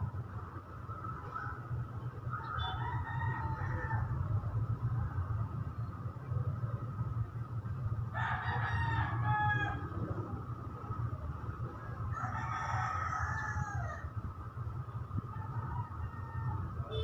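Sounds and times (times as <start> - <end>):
rooster crowing: 2.4 - 4.3, 8.1 - 10.0, 12.1 - 14.1, 15.3 - 17.0.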